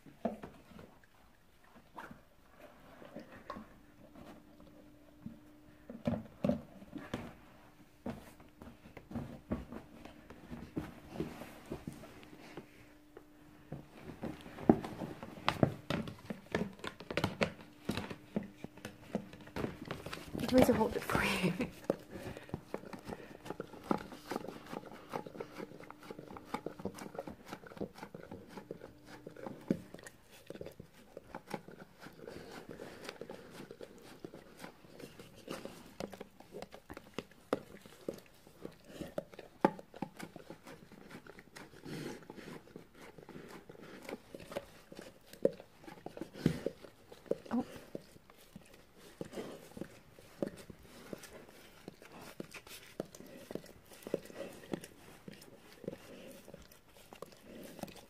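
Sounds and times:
dog licking with wet smacks: 21.8s - 58.0s.

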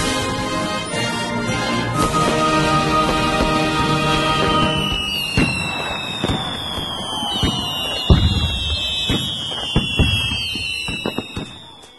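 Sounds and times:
music: 0.0s - 6.2s
fireworks whistles gliding down: 0.0s - 11.9s
fireworks bangs: 1.9s - 11.9s.

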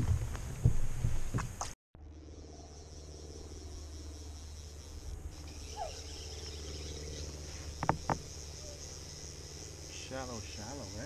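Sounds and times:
crickets trilling: 2.0s - 11.0s
falling chirp: 5.4s - 7.8s.

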